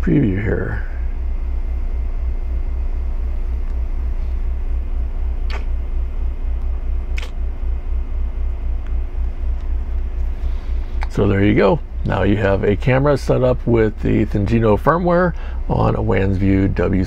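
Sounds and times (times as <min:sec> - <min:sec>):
throbbing low machine hum: 0:00.0 - 0:17.0
short clicks: 0:05.4 - 0:05.8, 0:06.6 - 0:07.4.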